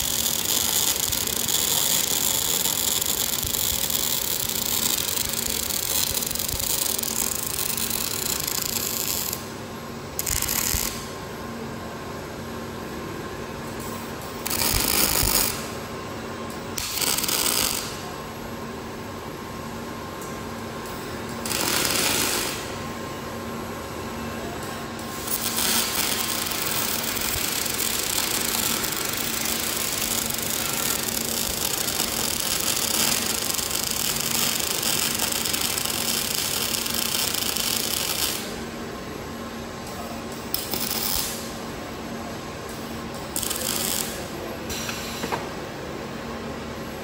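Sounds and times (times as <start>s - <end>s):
welding arc crackling and sizzling: 0.0s - 9.5s, 10.2s - 11.1s, 13.8s - 15.8s, 16.8s - 18.0s, 20.9s - 22.7s, 25.1s - 38.6s, 40.5s - 41.4s, 43.3s - 44.2s
welding equipment hum: 0.0s - 47.0s.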